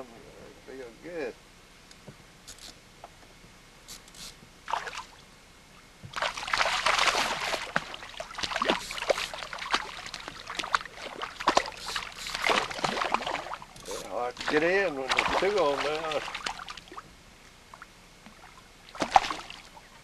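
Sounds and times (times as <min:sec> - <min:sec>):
fish splashing in water: 0:04.7 - 0:05.1, 0:06.1 - 0:17.0, 0:18.4 - 0:19.8.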